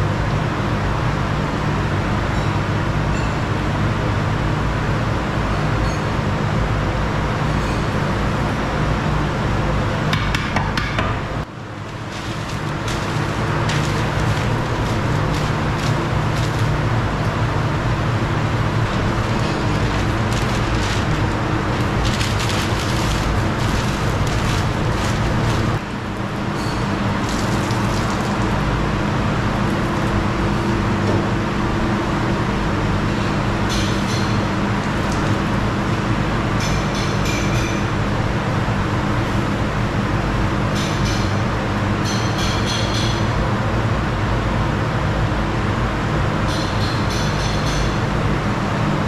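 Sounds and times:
gas burners and ventilation roar: 0.0s - 49.0s
paper crinkling: 11.8s - 17.4s, 18.7s - 25.8s, 27.1s - 28.5s.

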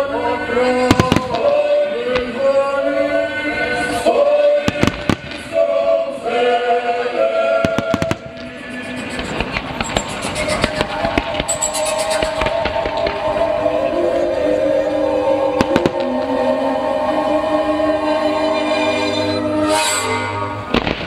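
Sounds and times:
choral music: 0.0s - 21.0s
fireworks bursting: 0.8s - 2.4s, 4.6s - 5.8s, 7.6s - 13.8s, 15.6s - 16.4s, 20.6s - 21.0s.

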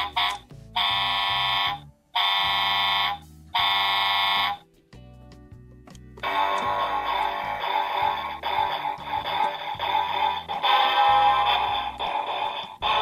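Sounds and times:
toy electronic horn honking: 0.0s - 4.6s, 6.2s - 13.0s
strummed guitar music: 4.4s - 13.0s.

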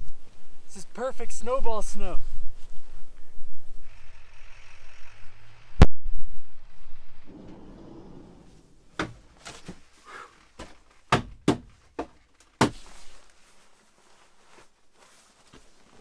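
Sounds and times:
shuffling: 7.3s - 11.1s, 11.7s - 16.0s.

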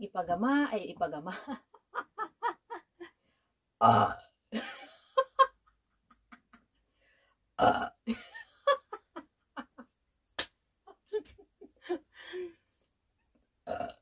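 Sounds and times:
woman burping loudly: 3.8s - 4.4s, 7.6s - 8.2s, 13.6s - 14.0s.

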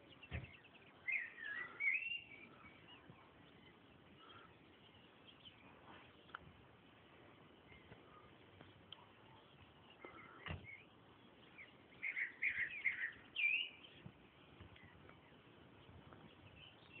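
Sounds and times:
birds chirping: 0.0s - 17.0s
faint steady hiss: 0.0s - 17.0s
bird sweeping call: 0.4s - 3.0s, 12.0s - 14.0s.

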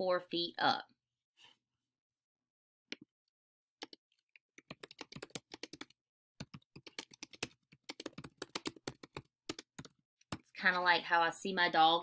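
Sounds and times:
typing on computer keyboard: 4.6s - 10.4s.

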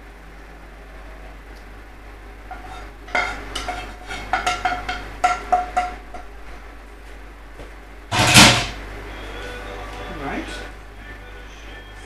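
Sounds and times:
wooden spatula scraping metal pan: 2.5s - 5.0s.

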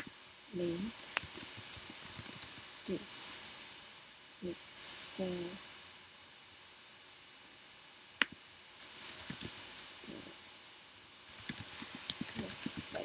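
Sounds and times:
typing on computer keyboard: 1.0s - 2.5s, 8.7s - 9.8s, 11.3s - 13.0s.

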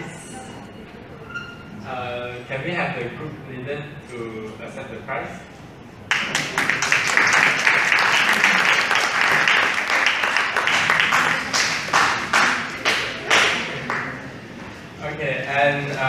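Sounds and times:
audience applauding: 6.1s - 14.5s.

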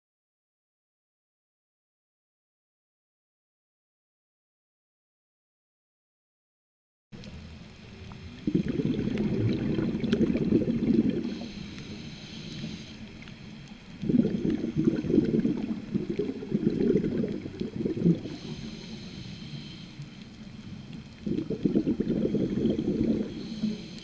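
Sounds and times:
bubbling exhaled air underwater: 8.0s - 19.8s, 20.8s - 24.0s
regulator inhale hiss: 10.4s - 24.0s.

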